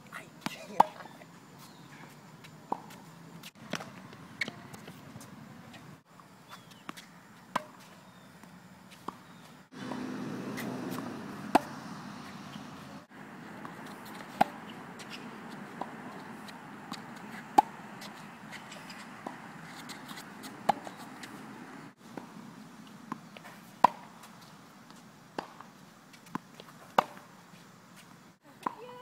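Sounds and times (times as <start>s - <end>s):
tennis balls bouncing on court: 0.4s - 1.2s, 2.4s - 5.8s, 6.7s - 22.3s, 23.1s - 24.3s, 24.9s - 27.3s, 28.5s - 29.0s
tennis balls struck with racquets: 6.8s - 7.9s, 9.0s - 22.3s, 23.1s - 24.1s, 25.4s - 25.6s, 26.3s - 27.3s.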